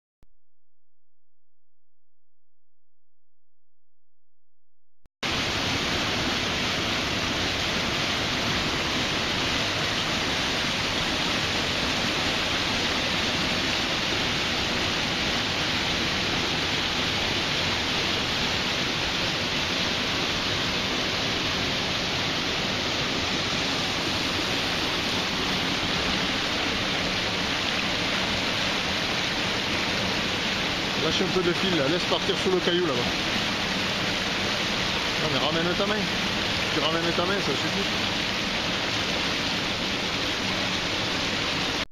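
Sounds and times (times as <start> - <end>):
stream rushing over rocks: 5.2 - 41.8.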